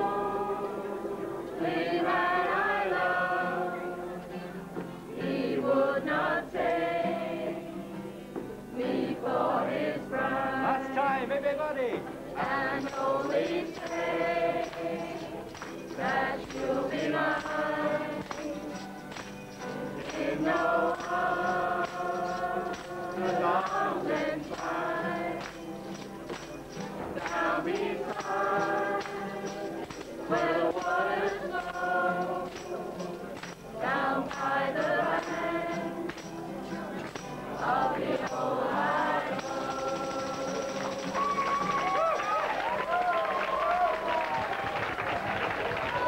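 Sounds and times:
group singing in unison: 0:00.0 - 0:11.2, 0:12.3 - 0:42.0
strummed acoustic guitar: 0:10.0 - 0:42.4
tambourines shaken and tapped: 0:12.0 - 0:42.5.

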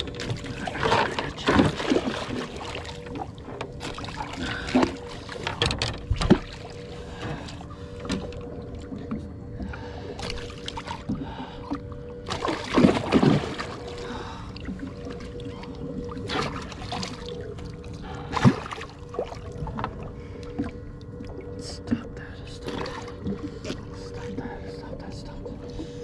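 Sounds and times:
steady low hum: 0:00.0 - 0:26.0
water sloshing against hull: 0:00.0 - 0:26.0.

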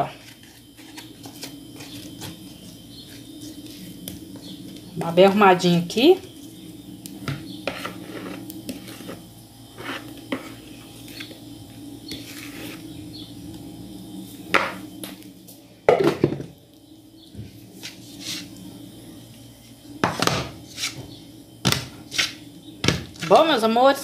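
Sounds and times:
low hum: 0:00.1 - 0:23.2
spatula scraping cake pan: 0:07.6 - 0:11.3, 0:12.1 - 0:12.9, 0:17.8 - 0:18.5, 0:20.1 - 0:21.1, 0:22.1 - 0:22.4.

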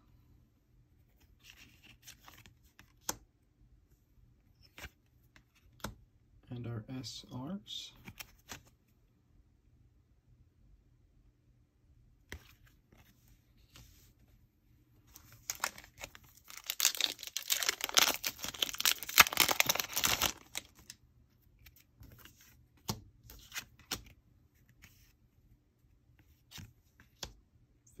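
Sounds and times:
foil pack tearing and crinkling: 0:15.5 - 0:20.8.

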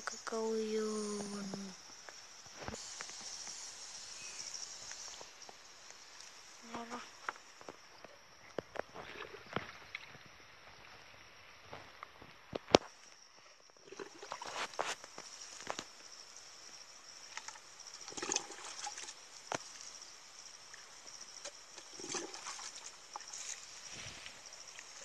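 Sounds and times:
water splashing on soil: 0:17.3 - 0:25.0.

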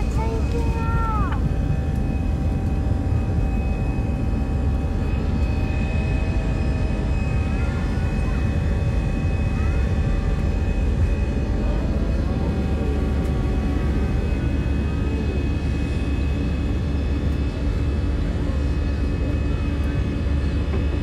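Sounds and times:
high engine whine: 0:00.0 - 0:21.0
jet engines rumbling: 0:00.0 - 0:21.0.

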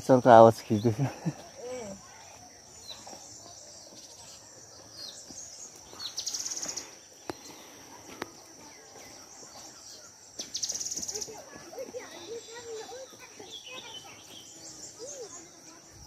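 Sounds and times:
insects droning: 0:00.0 - 0:16.0.

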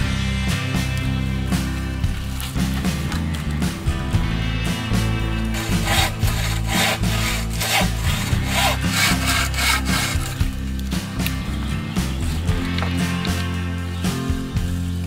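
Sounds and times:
background music: 0:00.0 - 0:15.0
saw cutting wood: 0:05.0 - 0:10.6.

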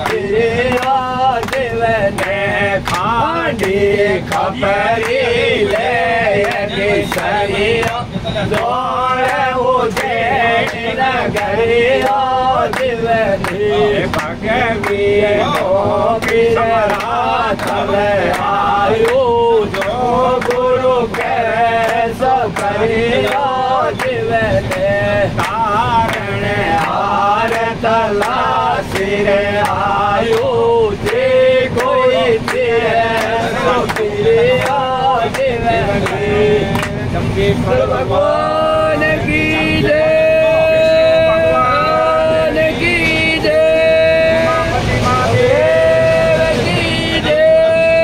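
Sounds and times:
man singing folk verse: 0:00.0 - 0:48.0
train rumbling: 0:00.0 - 0:48.0.

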